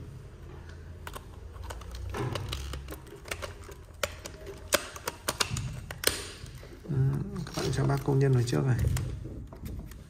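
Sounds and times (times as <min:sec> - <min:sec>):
plastic parts clicking: 0:01.0 - 0:10.0.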